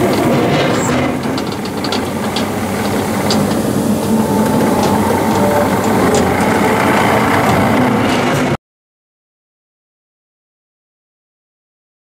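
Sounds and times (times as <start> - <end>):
tracks driving on gravel: 0.0 - 8.5
diesel engine running: 0.0 - 8.6.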